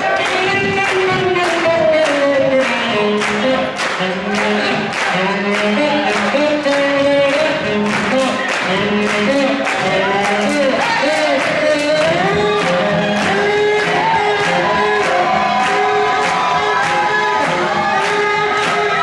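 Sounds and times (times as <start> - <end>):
swing jazz with singing: 0.0 - 19.0.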